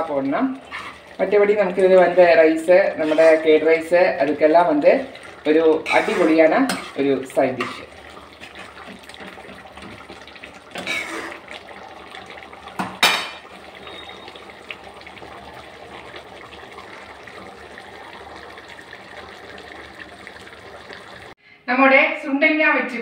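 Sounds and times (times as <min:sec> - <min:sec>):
thick gravy bubbling and popping: 0:00.0 - 0:21.4
ladle scraping through gravy: 0:00.6 - 0:01.2, 0:01.8 - 0:03.8, 0:05.0 - 0:12.6.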